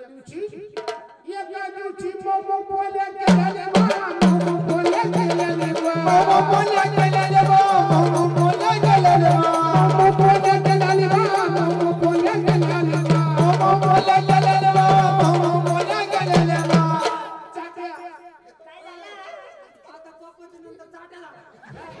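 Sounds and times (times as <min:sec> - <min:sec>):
fast drum rhythm: 0:03.3 - 0:17.6
jingling percussion: 0:03.3 - 0:17.8.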